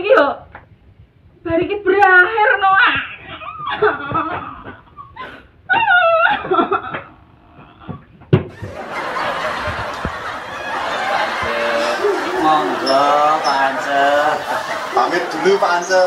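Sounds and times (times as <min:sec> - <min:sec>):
woman wailing: 0:03.4 - 0:08.0.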